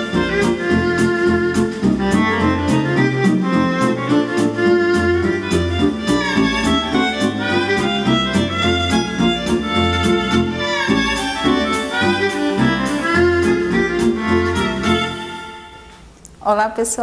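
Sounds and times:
instrumental music with a steady beat: 0.0 - 16.1.

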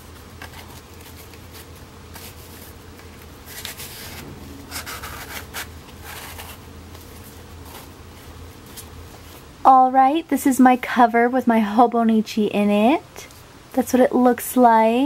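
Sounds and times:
low steady hum: 0.0 - 15.0
paper rustling and scraping: 0.4 - 9.5.

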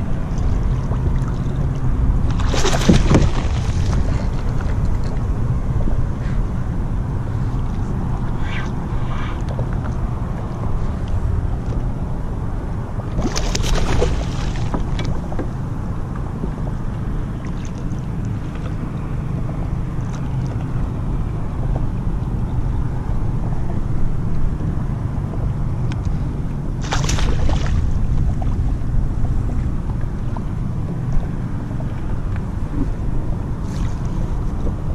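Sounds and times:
wind rumbling on microphone: 0.0 - 34.9
water slapping against kayak hull: 0.4 - 5.1, 13.2 - 15.5, 26.8 - 30.0.

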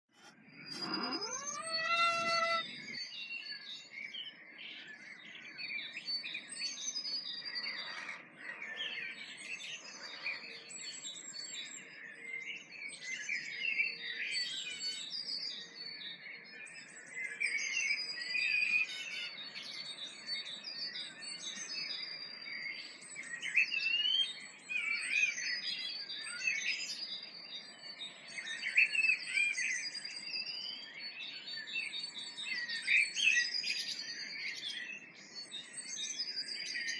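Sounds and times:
songbirds chirping and trilling: 0.1 - 36.9
birds warbling: 0.2 - 3.1.

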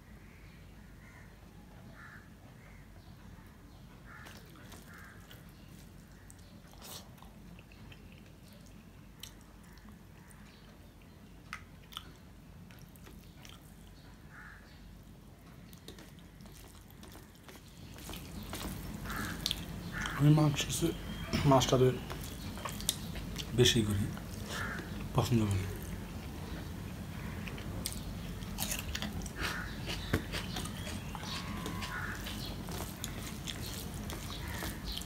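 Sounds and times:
man chewing and lip-smacking: 4.2 - 14.0, 15.7 - 20.2, 22.0 - 23.6, 25.8 - 35.0.

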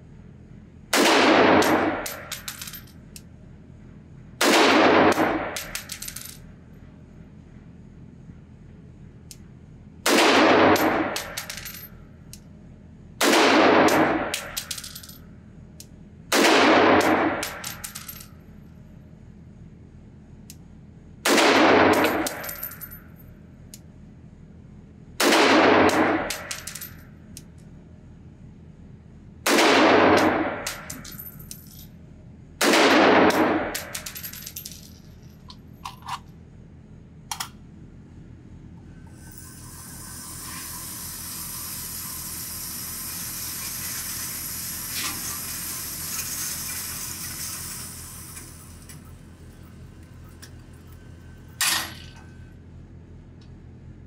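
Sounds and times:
rifle shots echoing: 0.9 - 2.2, 4.4 - 5.8, 10.0 - 11.4, 13.2 - 14.5, 16.3 - 17.6, 21.2 - 22.3, 25.2 - 26.5, 29.5 - 30.9, 32.6 - 34.0.

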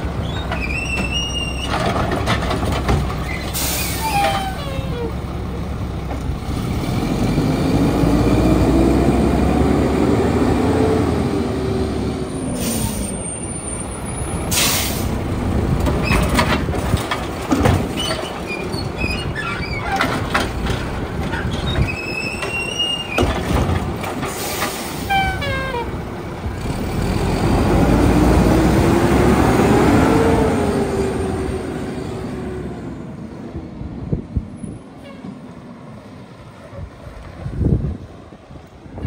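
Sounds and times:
high metallic squeaks: 3.2 - 5.2, 18.0 - 20.1, 21.4 - 23.3
diesel truck engine revving: 3.5 - 19.6, 23.4 - 33.6.

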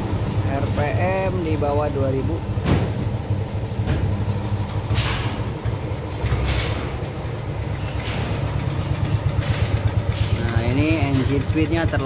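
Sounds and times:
scooter engine idling: 5.5 - 12.0.

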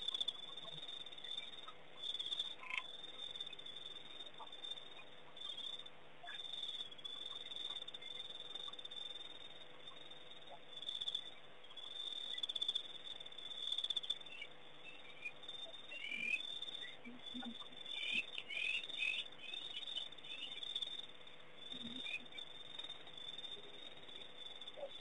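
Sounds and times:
crickets chirring: 0.0 - 25.0
faint steady hum: 0.0 - 25.0
quick chirping calls: 14.2 - 20.6.

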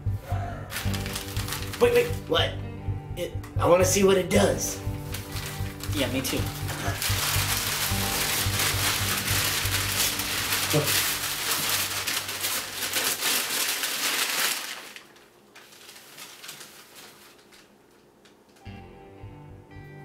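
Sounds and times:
paper tearing and crumpling: 0.7 - 2.3, 5.1 - 17.8.

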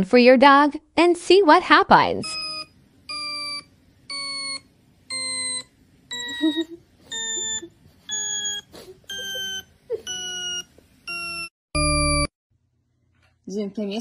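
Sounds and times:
electronic beeps falling in pitch: 2.2 - 12.3.

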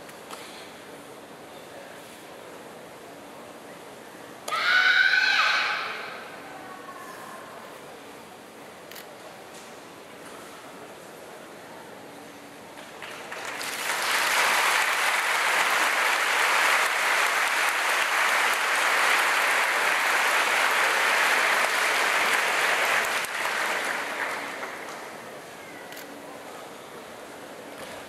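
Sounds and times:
audience applauding: 13.0 - 25.2.

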